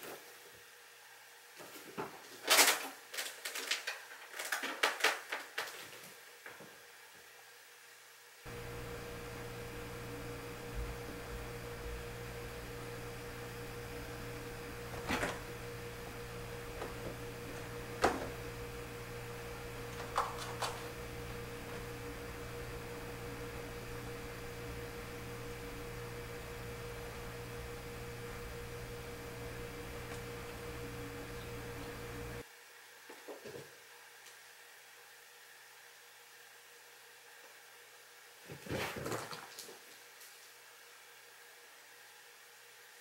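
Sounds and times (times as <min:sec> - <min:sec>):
steady electrical hum: 0:07.7 - 0:32.5.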